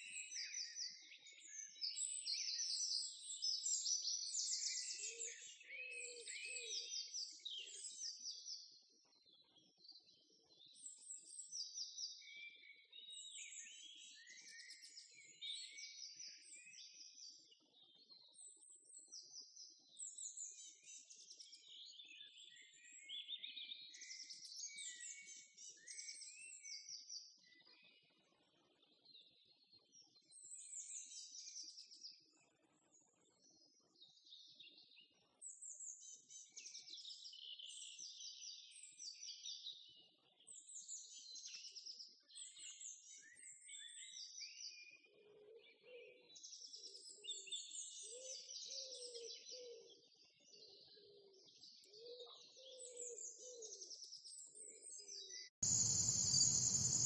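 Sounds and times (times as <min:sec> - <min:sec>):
songbirds chirping and singing: 0:43.3 - 0:57.0
insect chorus: 0:55.6 - 0:57.0
lower repeated bird call: 0:55.6 - 0:57.0.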